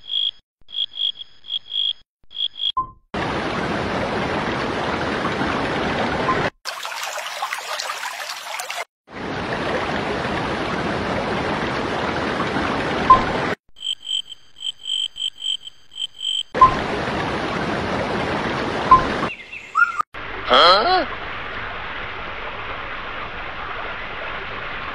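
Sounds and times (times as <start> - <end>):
water rushing: 3.2 - 13.6, 16.6 - 24.9.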